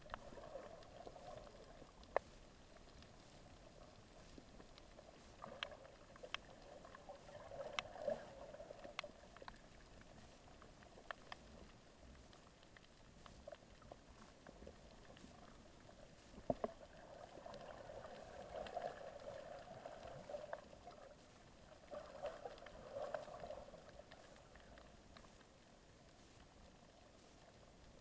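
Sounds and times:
faint mid-pitched noise: 0.0s - 28.0s
muffled underwater ambience: 0.0s - 28.0s
small clicks: 3.9s - 15.6s.

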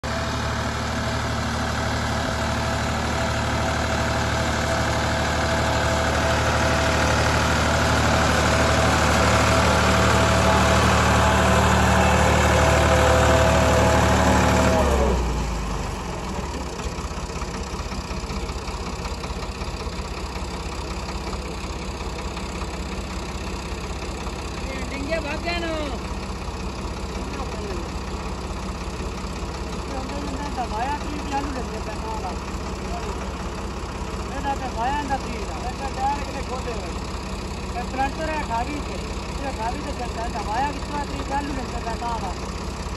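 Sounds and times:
tractor diesel engine running: 0.0s - 42.9s.

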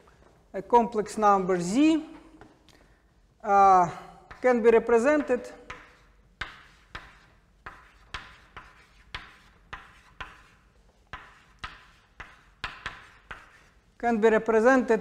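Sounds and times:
chalk tapping on chalkboard: 4.3s - 4.5s, 5.1s - 13.8s
chalk scratching on chalkboard: 5.2s - 13.9s.

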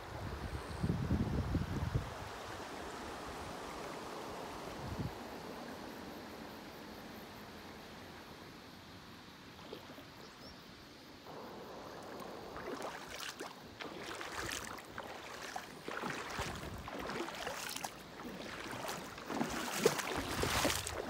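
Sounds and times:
river gurgling over stones: 11.3s - 21.0s.

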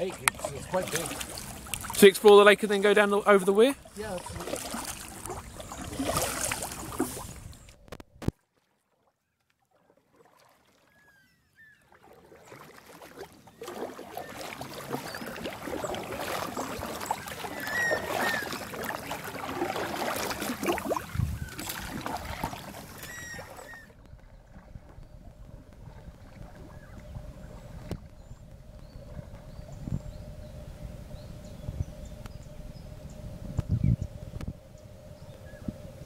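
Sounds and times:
canoe paddle splashing in water: 0.0s - 2.5s, 3.8s - 28.2s
water dripping: 0.0s - 2.6s
birds chirping: 0.0s - 7.7s, 13.4s - 19.2s, 21.1s - 35.8s.

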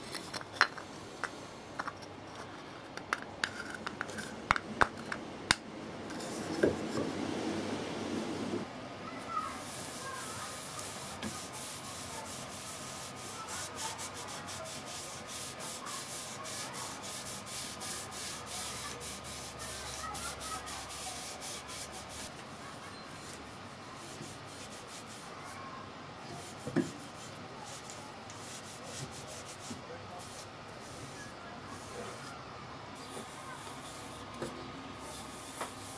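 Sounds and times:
cloth rag rubbing wood: 9.6s - 23.4s, 24.0s - 25.3s, 26.3s - 31.1s, 35.1s - 35.9s.

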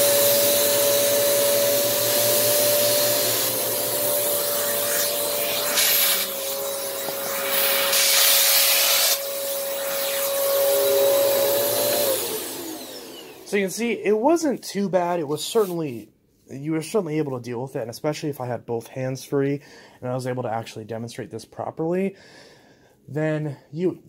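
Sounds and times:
vacuum cleaner running: 0.0s - 14.1s.

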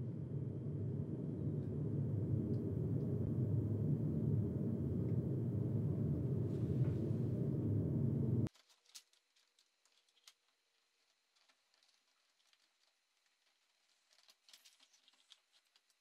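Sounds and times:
computer fans rushing air: 0.0s - 8.5s.

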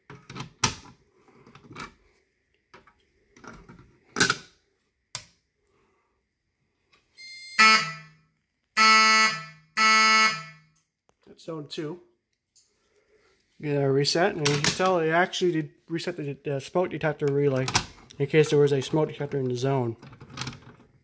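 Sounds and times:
fire alarm horn blasts: 7.2s - 10.9s.

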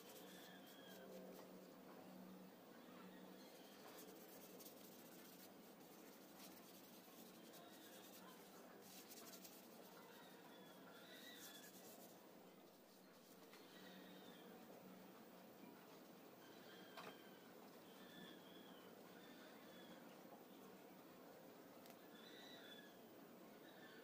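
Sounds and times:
cloth rubbing wooden spoon: 0.0s - 1.4s, 3.6s - 10.4s, 11.0s - 12.2s.

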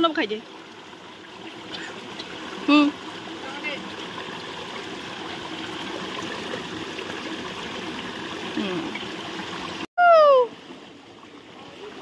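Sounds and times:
waterfall rushing over rock: 3.2s - 9.9s.

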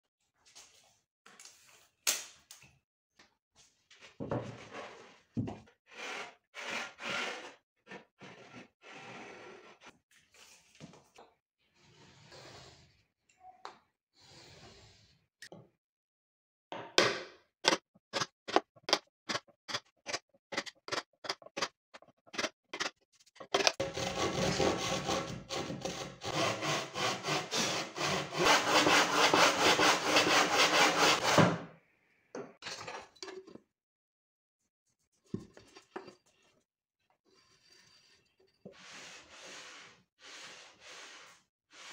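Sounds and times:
hand saw cutting board: 5.9s - 7.6s, 23.6s - 31.6s.

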